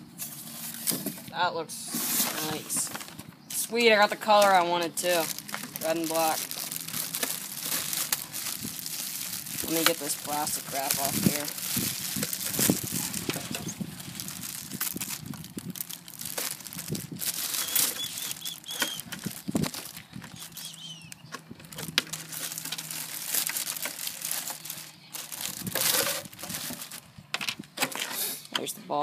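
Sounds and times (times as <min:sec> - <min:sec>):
plastic bag crinkling: 0:02.1 - 0:27.1.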